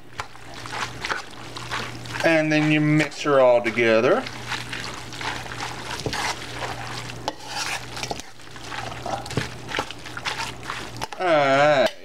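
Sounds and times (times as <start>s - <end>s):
wet squishing of noodles: 0.0s - 11.3s.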